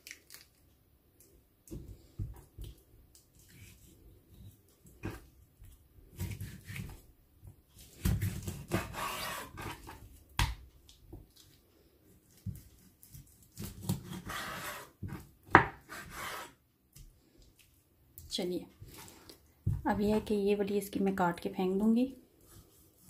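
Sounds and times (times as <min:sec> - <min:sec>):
knife scraping on cutting board: 0:08.2 - 0:10.0, 0:14.0 - 0:14.9, 0:15.8 - 0:16.6.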